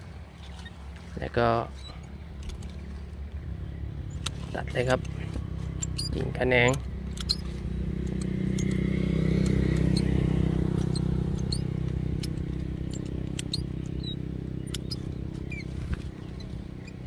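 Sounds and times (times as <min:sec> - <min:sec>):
low engine-like drone: 0:00.0 - 0:17.0
sharp high clicks: 0:04.0 - 0:17.0.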